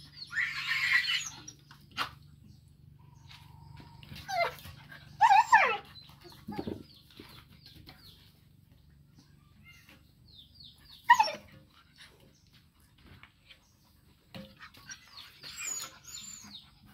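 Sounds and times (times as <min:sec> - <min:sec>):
falling yelps: 0:00.2 - 0:01.6.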